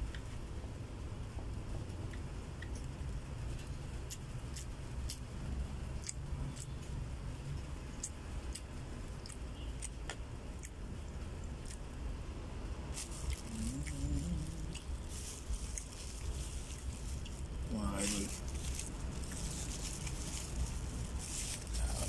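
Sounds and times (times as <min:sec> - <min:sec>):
low background rumble: 0:00.0 - 0:22.0
chewing: 0:06.0 - 0:06.8, 0:08.0 - 0:10.8, 0:13.0 - 0:22.0.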